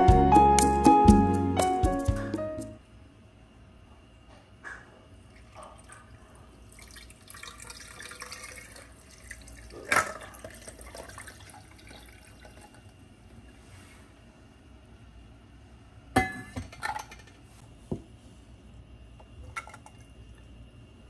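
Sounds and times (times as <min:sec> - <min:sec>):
coffee pouring over ice: 0:06.6 - 0:12.9.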